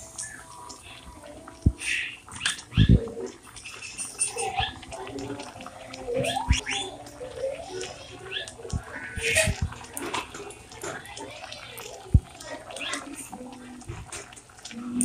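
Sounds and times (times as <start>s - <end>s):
animal chirping and squawking: 3.6s - 4.8s, 6.1s - 9.6s.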